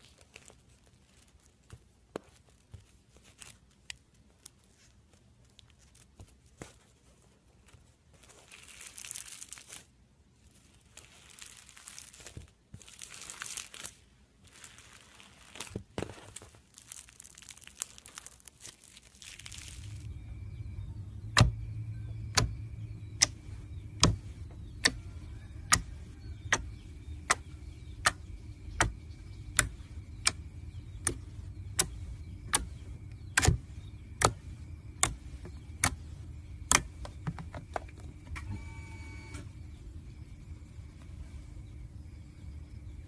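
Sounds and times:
low steady hum: 0.0 - 43.0
slime popping: 10.8 - 20.0.

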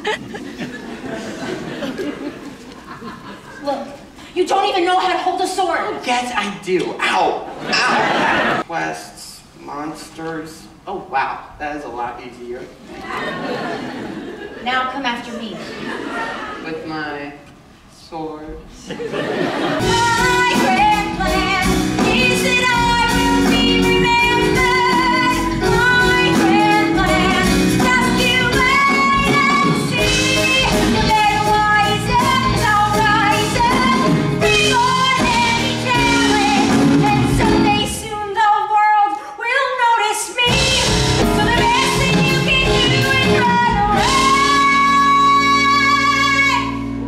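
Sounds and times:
live band playing: 19.3 - 38.3, 40.4 - 47.0
woman singing: 19.8 - 46.9.

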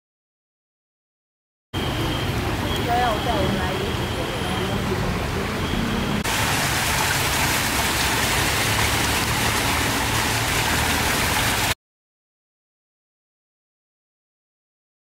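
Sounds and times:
waterfall splashing into pond: 6.2 - 11.8.

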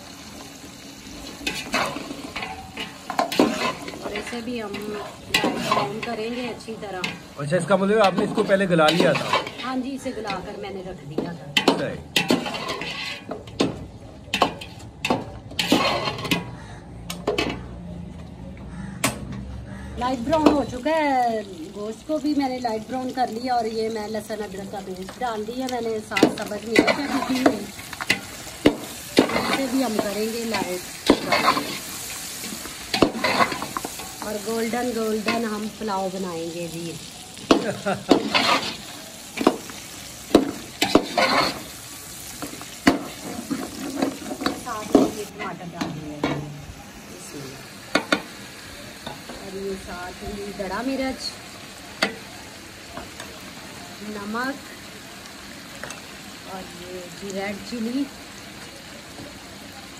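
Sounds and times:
low sizzle: 0.0 - 59.9
metal spoon scraping pot: 1.4 - 7.2, 8.0 - 10.4, 11.6 - 13.6, 15.5 - 16.6, 38.1 - 38.9, 40.8 - 41.7.

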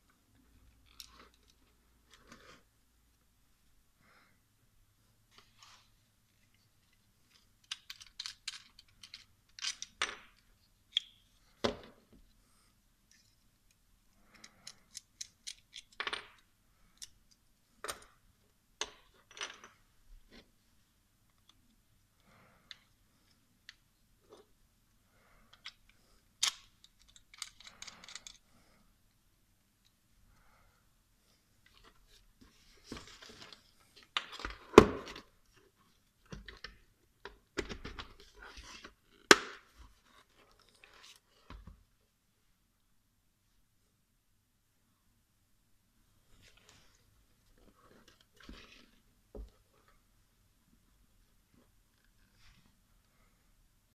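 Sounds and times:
plastic parts clicking and rattling: 6.8 - 11.2, 13.1 - 18.2, 25.5 - 28.5.

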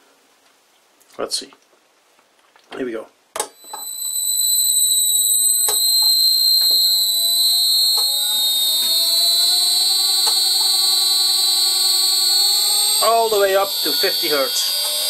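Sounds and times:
high piercing whistle: 3.5 - 15.0
motor tones rising in pitch: 3.6 - 15.0.

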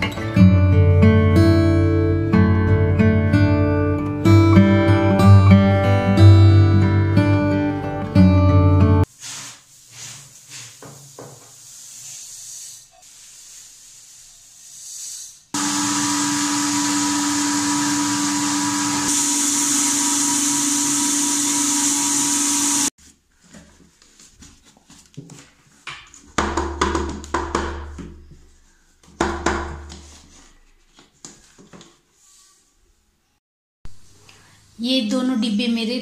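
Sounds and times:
electric flour mill humming and whining: 15.6 - 22.9.

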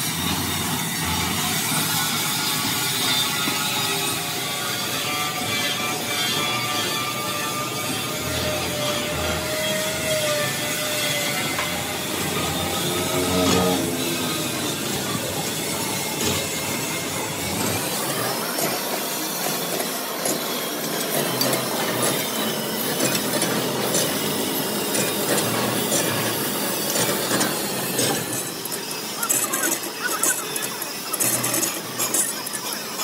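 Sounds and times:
lathe running: 0.0 - 33.0.

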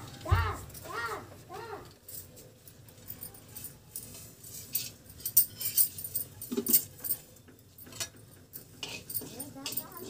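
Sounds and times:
spices crackling in hot oil: 7.8 - 10.0.

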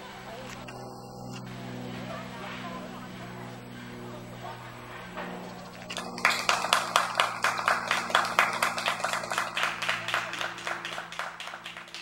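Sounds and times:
steady low hum: 0.0 - 12.0
people clapping: 5.8 - 12.0.

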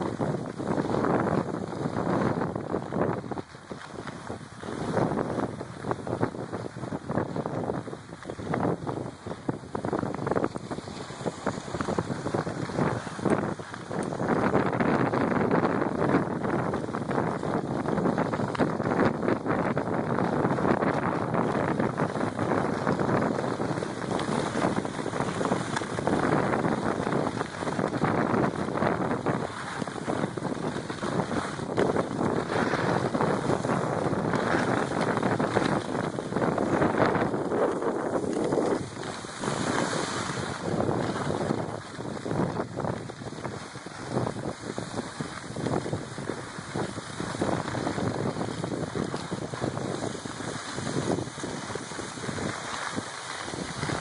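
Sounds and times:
skis scraping through snow: 0.0 - 54.0
wind rushing over microphone: 0.0 - 54.0.

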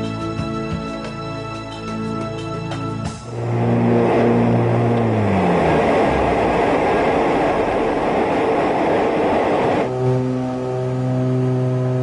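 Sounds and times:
aircraft engine drone: 1.3 - 12.0
airflow rushing: 3.1 - 9.9.

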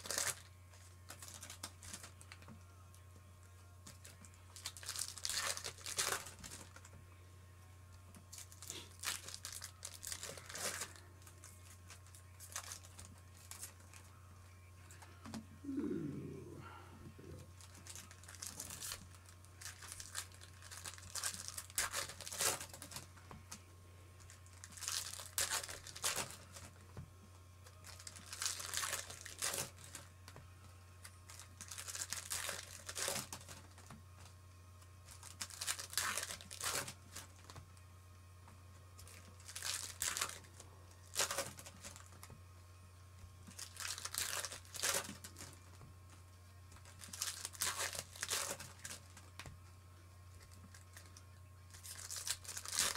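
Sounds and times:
wrappers tearing and crinkling: 0.0 - 2.6, 3.8 - 7.0, 8.1 - 14.1, 14.9 - 23.1, 24.2 - 26.8, 27.8 - 30.4, 31.0 - 34.3, 35.0 - 37.6, 39.0 - 42.4, 43.4 - 45.8, 46.7 - 49.5, 50.3 - 52.9
cards rustling: 8.2 - 14.1
low hum: 9.6 - 21.6.

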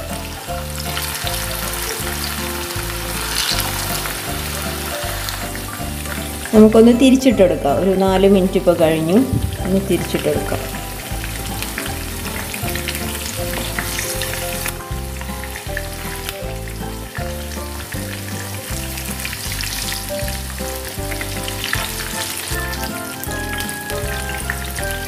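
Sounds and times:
background music with bass: 0.0 - 25.0
chicken sizzling in oil: 0.0 - 25.0
spatula turning food: 0.7 - 6.7.

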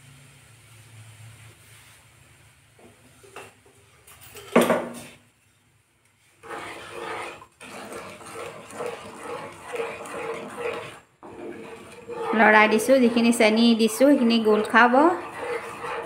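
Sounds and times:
wooden spatula scraping pan: 6.2 - 16.0.

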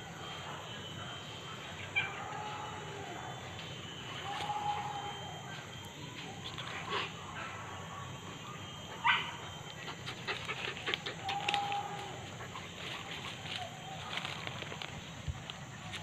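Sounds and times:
dog barking: 8.9 - 9.5.

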